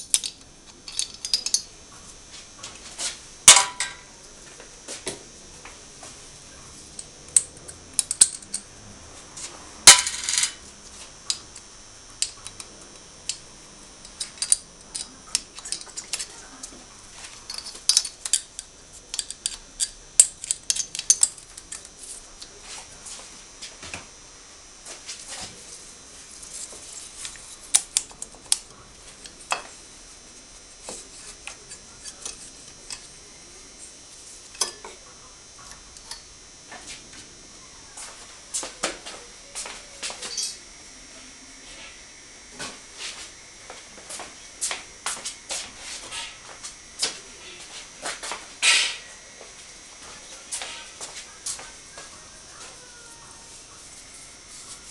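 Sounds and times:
metal tools clinking: 0.0 - 1.7, 17.4 - 21.8, 40.3 - 40.6.

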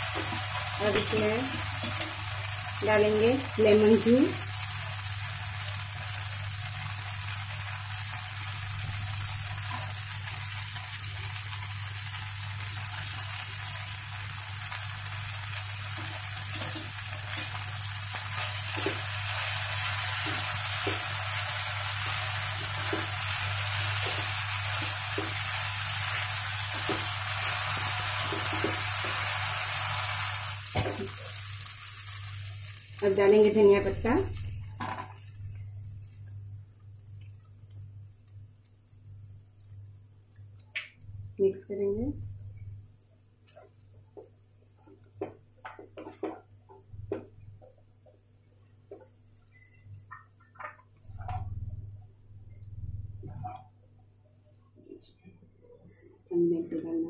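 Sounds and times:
noodles sizzling in a pan: 0.0 - 41.3.

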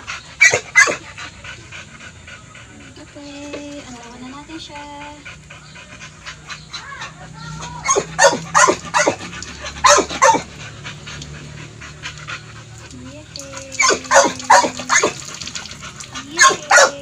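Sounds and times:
dog whining: 6.6 - 10.5
dog barking: 7.8 - 10.5, 13.8 - 15.2, 16.3 - 17.0.

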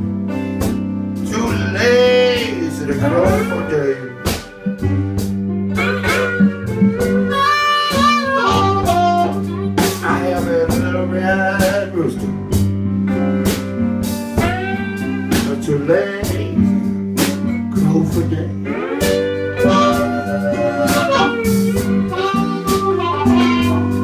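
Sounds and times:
blues guitar with sliding notes: 0.0 - 24.0
steady bass line: 0.0 - 24.0
drum beat: 2.4 - 11.0, 12.6 - 16.6, 19.0 - 24.0.

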